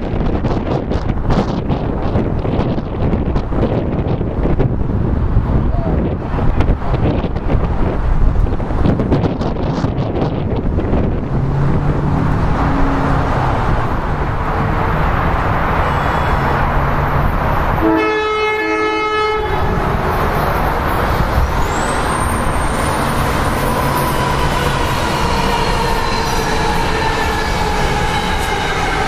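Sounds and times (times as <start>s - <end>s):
high train whine: 0.0s - 29.0s
wind and rail rumble: 0.0s - 29.0s
train horn blast: 17.8s - 20.4s.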